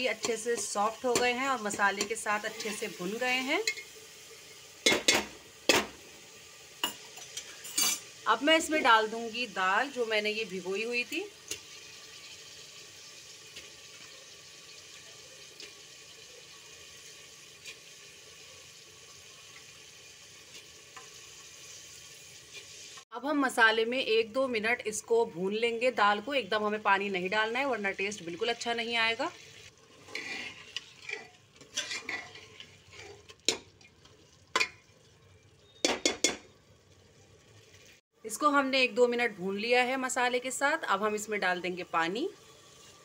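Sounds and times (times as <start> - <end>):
food sizzling in a pot: 0.0 - 43.0
ladle scraping in steel pot: 29.9 - 33.8.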